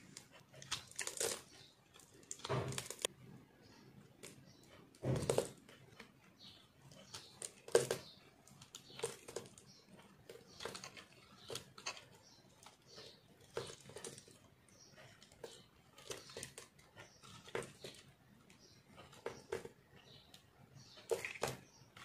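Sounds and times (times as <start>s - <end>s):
knife scraping soap: 0.0s - 3.1s, 4.1s - 22.0s.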